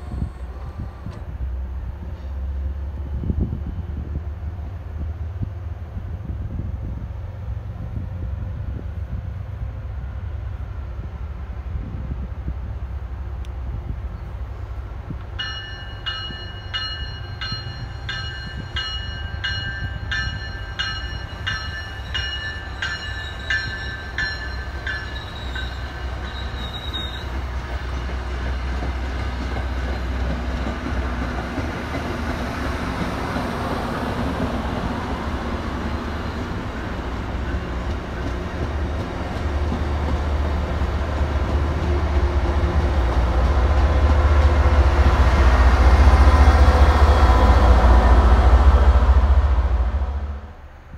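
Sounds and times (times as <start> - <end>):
diesel locomotive rumble: 0.0 - 50.9
train coaches rumbling on rails: 0.0 - 50.9
crossing bell ringing: 15.4 - 28.2.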